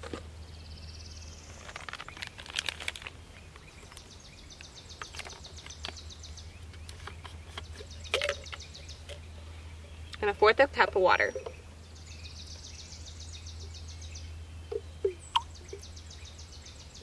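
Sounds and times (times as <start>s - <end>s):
clicks and rustles of containers: 1.5s - 9.4s.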